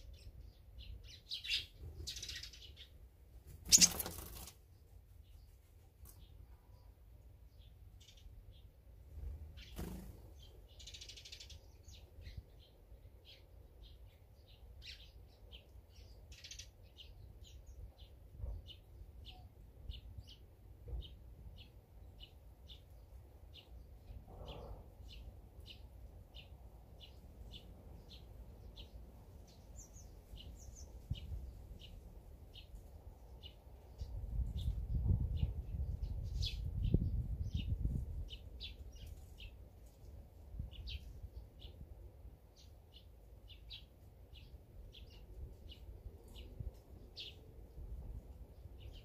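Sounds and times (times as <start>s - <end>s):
small bird chirping: 0.0s - 20.4s, 21.0s - 39.6s.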